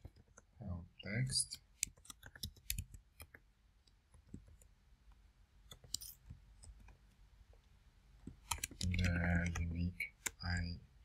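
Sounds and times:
keyboard keys clicking: 8.4 - 10.4.

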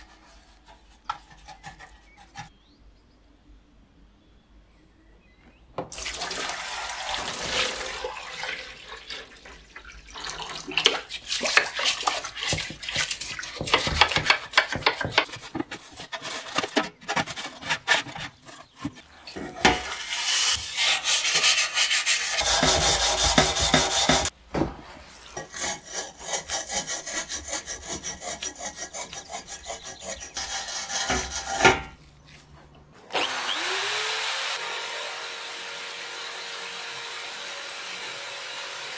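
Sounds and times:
water running into plastic tub: 5.9 - 15.2
steel wool scrubbing brass: 19.8 - 24.3, 25.0 - 31.6
electric drill spinning: 33.1 - 38.9.

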